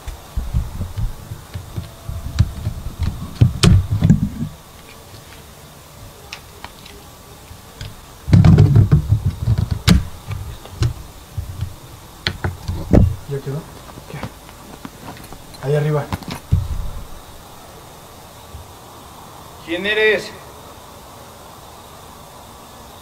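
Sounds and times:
weeds rustling and snapping: 0:00.0 - 0:17.6
footsteps through dry weeds: 0:13.2 - 0:17.4.

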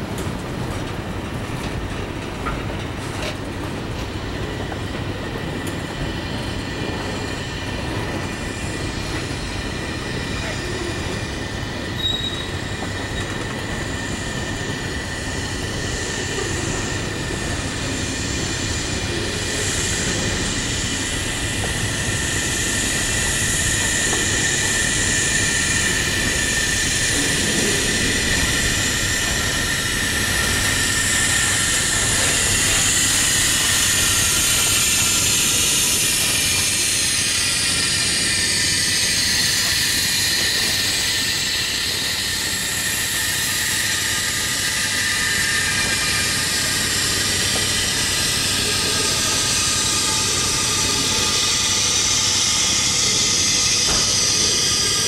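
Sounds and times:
steel train wheels rumbling on rails: 0:00.0 - 0:55.0.

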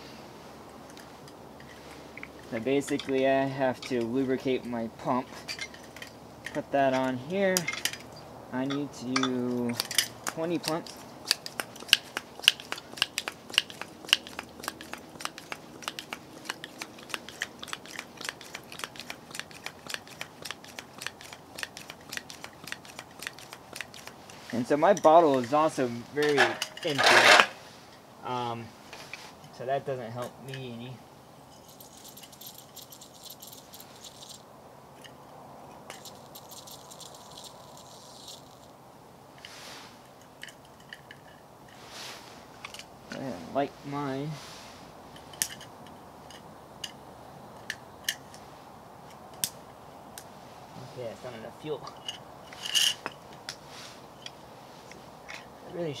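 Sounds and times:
hand pump plunger clicking: 0:09.7 - 0:24.6.

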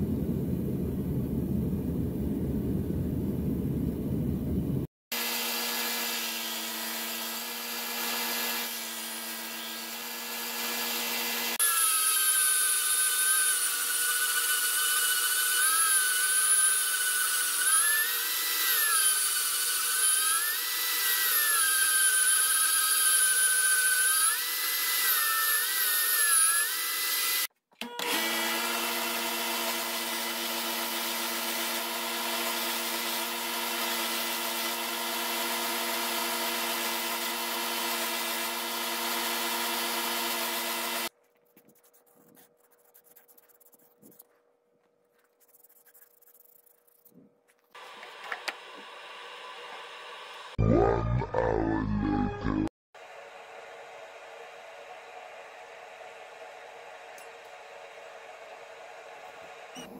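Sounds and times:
bandsaw cutting wood: 0:05.1 - 0:41.1.

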